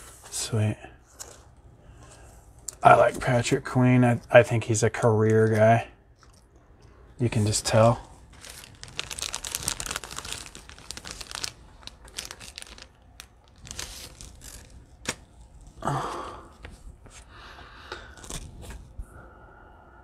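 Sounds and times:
plastic wrapping crinkling and tearing: 7.4 - 15.8, 18.1 - 18.7
cards clicking and rustling: 8.4 - 15.3.

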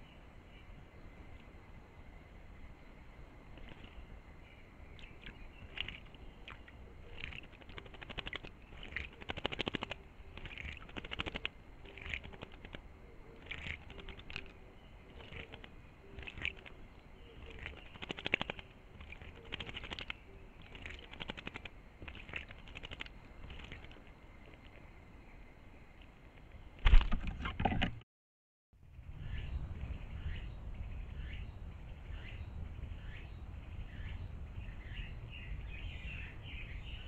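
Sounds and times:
bird splashing in water: 3.5 - 4.0, 5.0 - 24.8.

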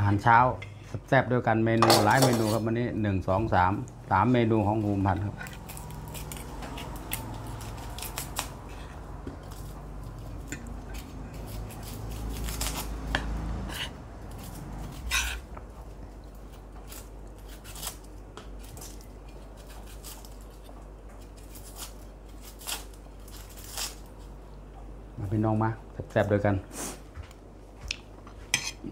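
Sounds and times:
cutlery clinking on a plate: 28.5 - 28.8.

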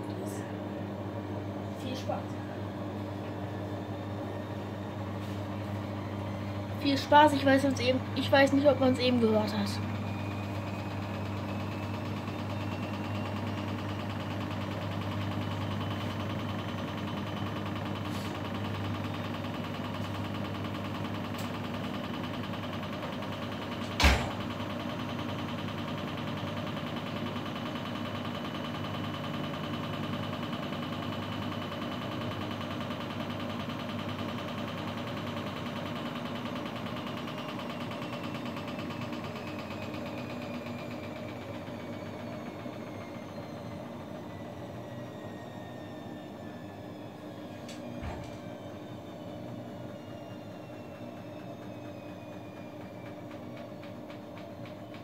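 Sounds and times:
washing machine spinning: 0.0 - 55.0.

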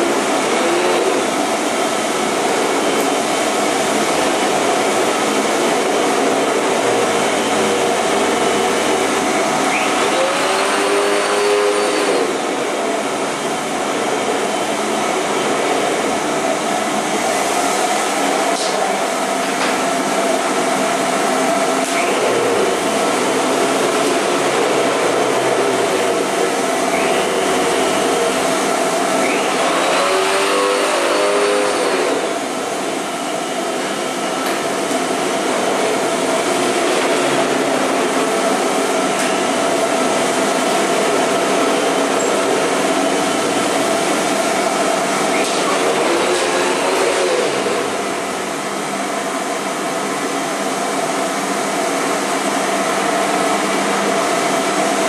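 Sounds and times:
vacuum cleaner running: 0.0 - 55.0.

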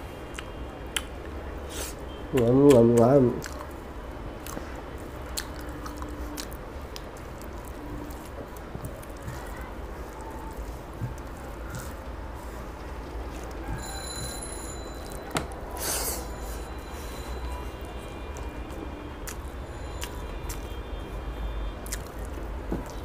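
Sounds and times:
metallic ring: 13.8 - 17.5.

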